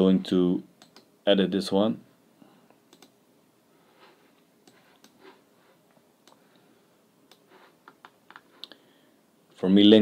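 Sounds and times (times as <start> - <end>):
mouse and keyboard clicks: 2.9 - 3.2, 4.6 - 5.2.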